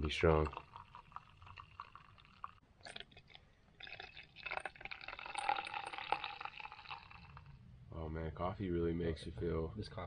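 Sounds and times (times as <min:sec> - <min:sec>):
person slurping coffee: 0:00.5 - 0:07.5.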